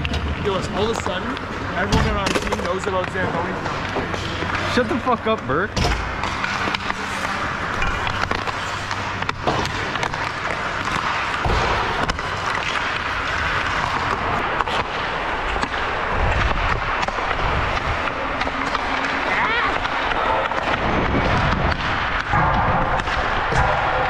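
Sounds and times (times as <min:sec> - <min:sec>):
pucks cracking off sticks and boards: 0:00.0 - 0:24.0
skate blades scraping ice: 0:06.2 - 0:24.0.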